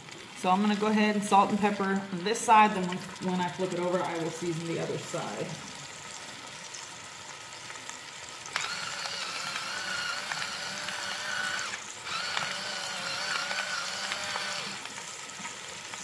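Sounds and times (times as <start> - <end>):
oil sizzling in a pot: 0.0 - 16.0
electric grinder motor whirring: 8.5 - 15.1.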